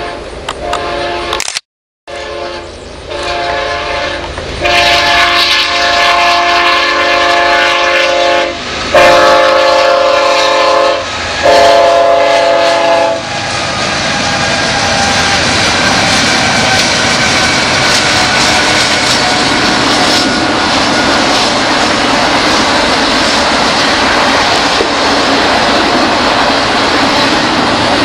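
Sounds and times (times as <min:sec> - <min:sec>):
locomotive air horn blasts: 0:00.0 - 0:01.4, 0:02.1 - 0:21.8
train rumbling past: 0:00.0 - 0:01.4, 0:02.1 - 0:28.0.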